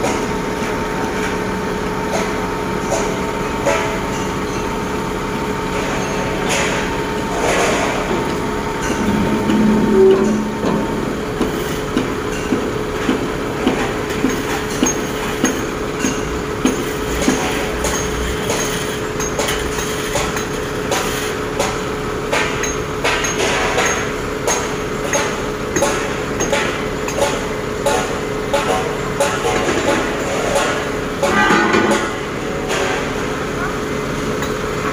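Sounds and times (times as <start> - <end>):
diesel engine humming: 8.0 - 12.8.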